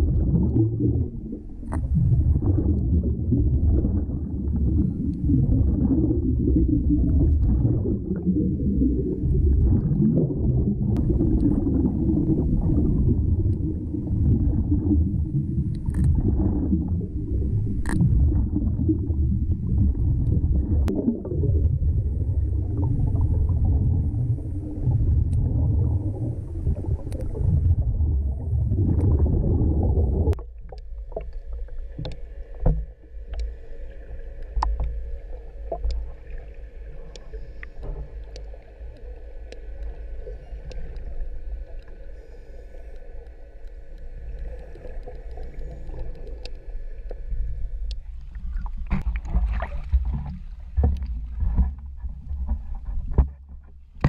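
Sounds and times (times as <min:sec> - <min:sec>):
steady hum: 0:00.0 - 0:54.0
underwater churning rumble: 0:00.0 - 0:54.0
sharp underwater clicks: 0:15.6 - 0:16.8, 0:17.6 - 0:18.2, 0:30.3 - 0:33.6, 0:42.8 - 0:47.2.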